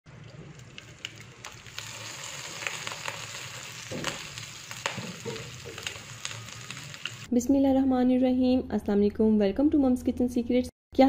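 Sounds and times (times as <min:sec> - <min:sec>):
meat sizzling in a frying pan: 0:00.7 - 0:07.3.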